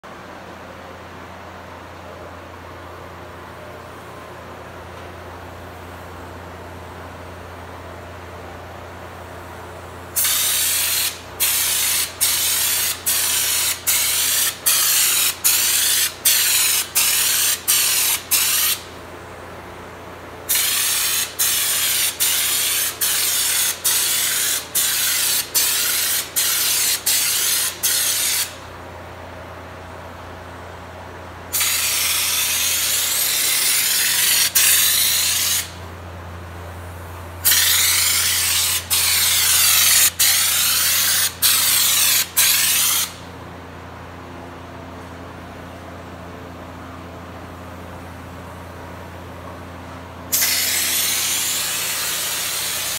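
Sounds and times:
steady low hum: 0:00.0 - 0:52.9
air spray gun hissing: 0:10.2 - 0:18.9, 0:20.4 - 0:28.7, 0:31.5 - 0:35.8, 0:37.4 - 0:43.2, 0:50.3 - 0:52.9.

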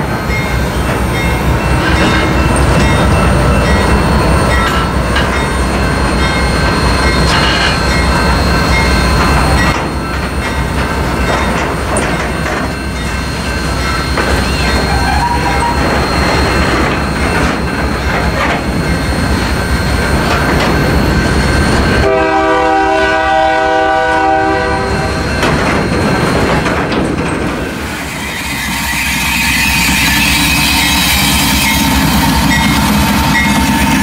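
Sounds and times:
diesel locomotive passing: 0:00.0 - 0:34.0
train wheels rumbling and clacking: 0:00.0 - 0:34.0
train horn chord: 0:22.0 - 0:25.1.

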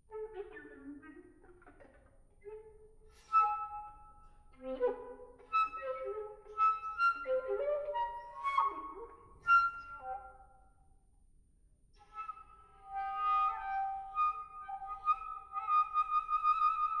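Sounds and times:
chamber music: 0:02.4 - 0:10.8, 0:12.0 - 0:17.0.

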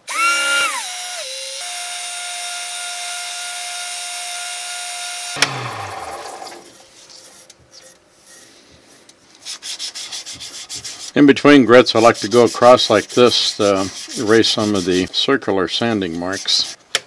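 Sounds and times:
lathe motor whining: 0:05.3 - 0:06.7.

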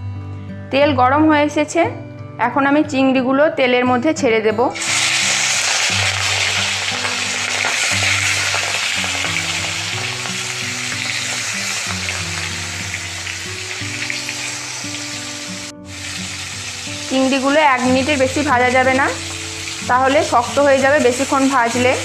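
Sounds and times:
soft background music: 0:00.0 - 0:22.0
prawns sizzling in hot oil: 0:04.8 - 0:22.0.

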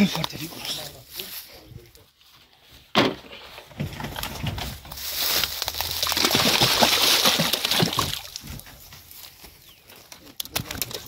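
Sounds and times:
water splashing: 0:05.5 - 0:08.7
fish flapping knocks and slaps: 0:06.0 - 0:08.6.

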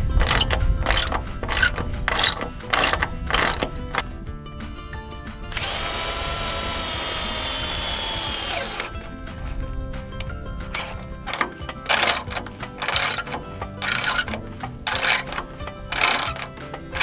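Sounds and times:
socket ratchet clicks: 0:00.2 - 0:04.1, 0:10.8 - 0:17.0
cordless drill motor whining: 0:05.5 - 0:09.2.

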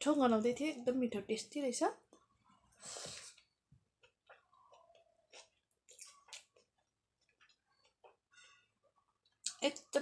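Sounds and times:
faint chewing and mouth clicks: 0:02.0 - 0:10.0.

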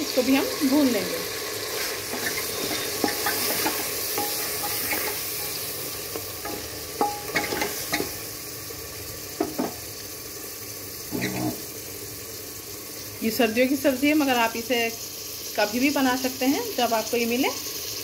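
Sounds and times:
meat sizzling in hot oil: 0:00.0 - 0:18.0
wooden spoon scraping a pot: 0:01.6 - 0:05.6, 0:11.1 - 0:11.7.

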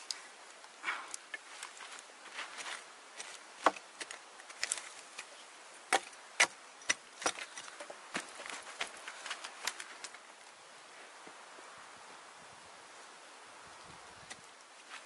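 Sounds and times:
hatchet chopping log: 0:03.2 - 0:04.8, 0:05.9 - 0:09.8.

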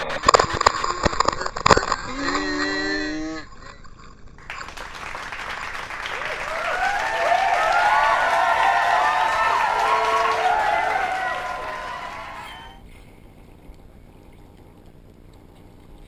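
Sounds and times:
crowd cheering: 0:04.5 - 0:12.8.

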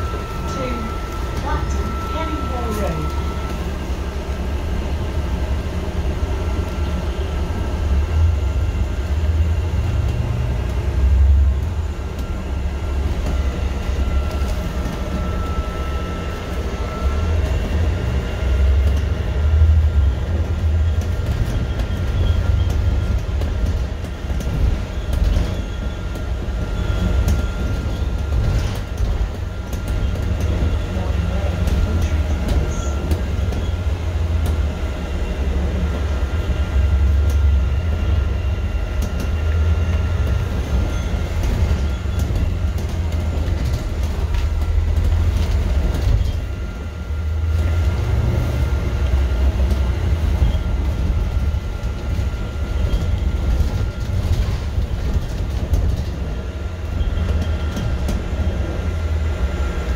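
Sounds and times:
faint high whine: 0:00.0 - 0:04.0
bus engine and road rumble: 0:00.0 - 0:59.9.

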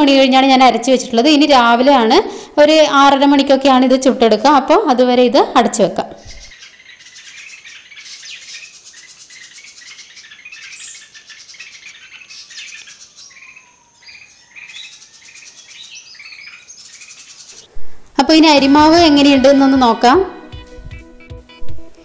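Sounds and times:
small birds chirping: 0:06.1 - 0:17.8.

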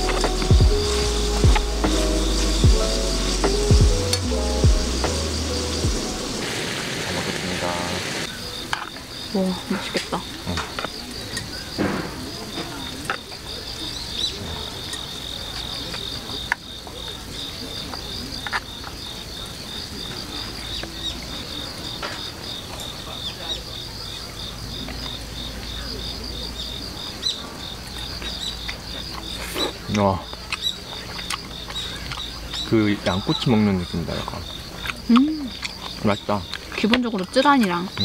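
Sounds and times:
insects chirping: 0:00.0 - 0:38.0
chopsticks clicking on wooden plates: 0:27.9 - 0:38.0.

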